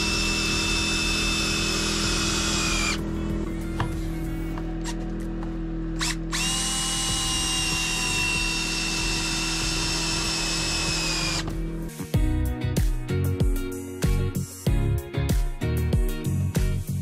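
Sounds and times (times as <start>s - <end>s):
cordless drill driving screws: 0.0s - 3.0s, 6.0s - 11.5s.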